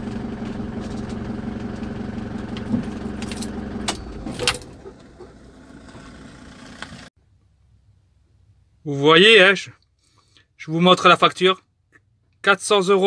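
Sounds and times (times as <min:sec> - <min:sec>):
van engine idling: 0:00.0 - 0:07.1
keys jingling: 0:02.8 - 0:04.9.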